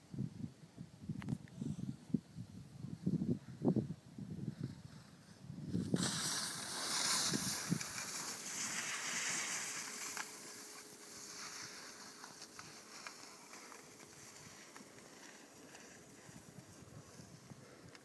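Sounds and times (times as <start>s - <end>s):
wind buffeting microphone: 0.1s - 8.5s
skis scraping across snow: 4.6s - 17.8s.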